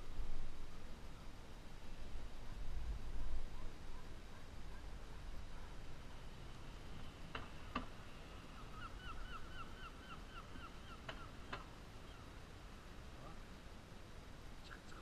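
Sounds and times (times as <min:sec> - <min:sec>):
gull calling: 0:08.5 - 0:12.3.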